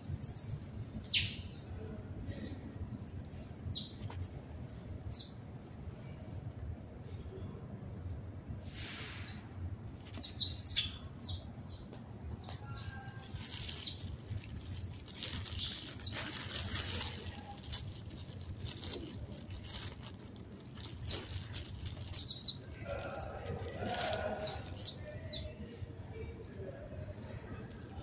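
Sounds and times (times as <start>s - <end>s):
sparrows chirping: 0.0s - 1.8s, 2.9s - 4.0s, 4.7s - 5.4s, 9.1s - 17.7s, 20.8s - 25.6s
low steady hum: 0.0s - 28.0s.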